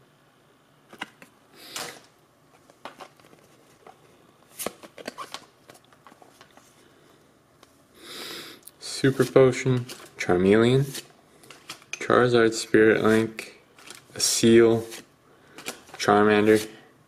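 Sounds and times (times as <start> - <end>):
cards rustling: 0.9 - 6.8, 9.0 - 12.0, 12.9 - 16.8.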